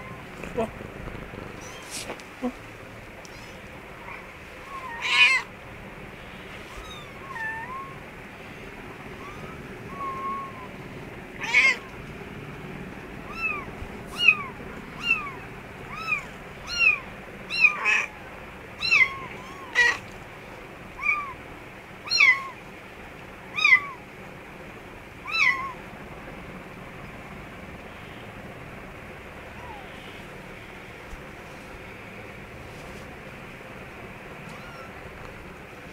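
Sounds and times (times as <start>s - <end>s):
kitten mewing: 0.0s - 2.6s, 3.3s - 5.5s, 11.4s - 11.9s, 13.3s - 18.1s.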